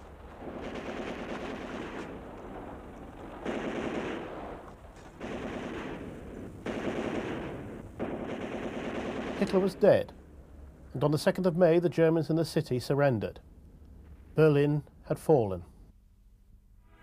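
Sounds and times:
machine-gun fire bursts: 0:00.2 - 0:09.9.

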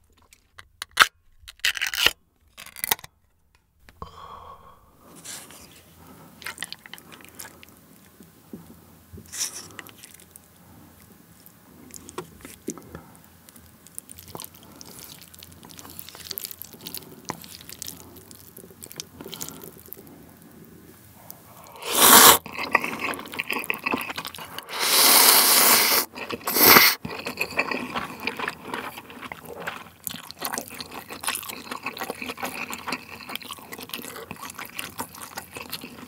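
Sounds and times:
wet squishing: 0:13.6 - 0:20.1.

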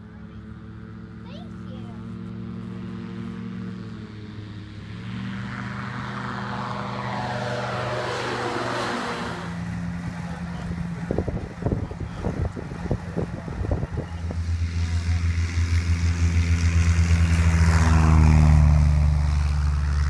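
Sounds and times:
aircraft engine droning past: 0:00.0 - 0:20.0
wind buffeting microphone: 0:10.6 - 0:14.6.

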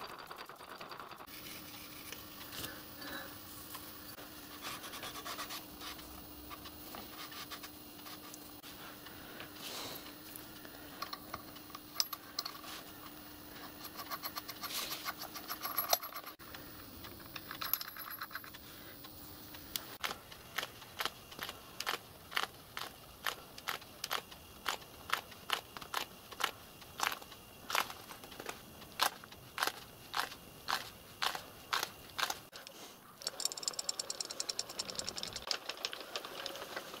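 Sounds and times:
metal parts clinking and scraping: 0:00.0 - 0:02.1, 0:10.6 - 0:18.7, 0:33.1 - 0:36.9
steady sharp clicks: 0:33.2 - 0:35.8.

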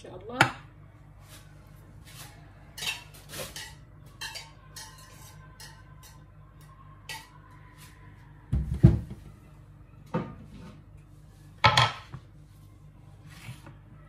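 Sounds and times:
cutting board knocking on countertop: 0:08.5 - 0:09.2.

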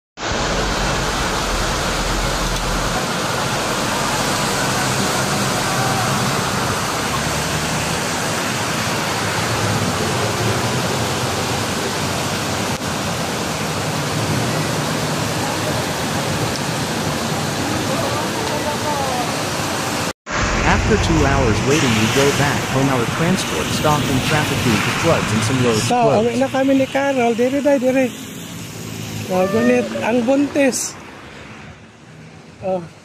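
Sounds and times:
low rumble: 0:00.2 - 0:05.7, 0:20.3 - 0:26.1
running water: 0:00.2 - 0:31.4
heavy rain pouring: 0:00.2 - 0:32.8.

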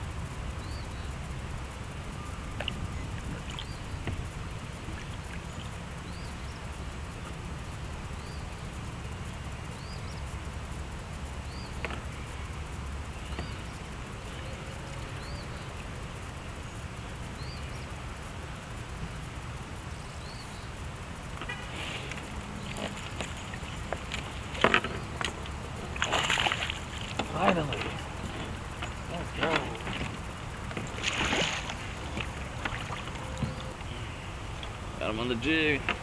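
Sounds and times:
steady low rumble: 0:00.0 - 0:36.0
bird chirping: 0:02.1 - 0:08.6, 0:11.4 - 0:18.0, 0:20.0 - 0:20.8, 0:21.4 - 0:31.0, 0:31.6 - 0:36.0.

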